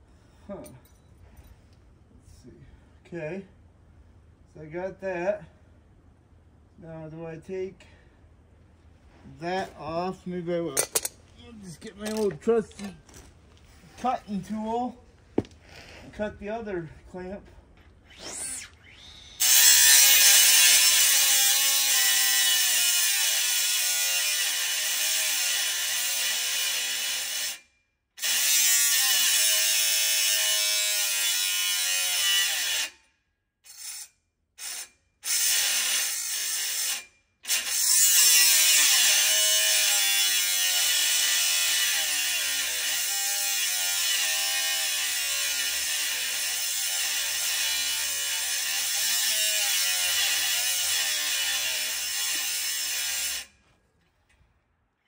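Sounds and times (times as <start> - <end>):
power tool cutting metal: 18.1 - 27.6, 28.2 - 33.0, 33.7 - 53.6.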